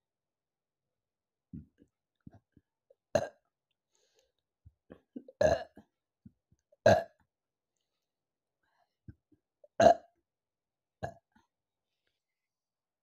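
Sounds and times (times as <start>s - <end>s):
woman burping: 4.9s - 5.8s.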